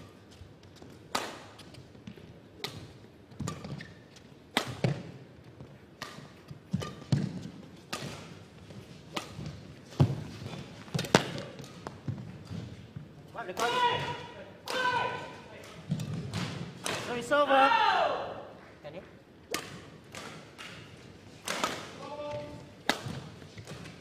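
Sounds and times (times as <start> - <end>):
racket striking shuttlecock: 0.9 - 1.7, 2.6 - 5.2, 5.9 - 8.4, 9.1 - 10.3, 19.5 - 22.0, 22.8 - 24.0.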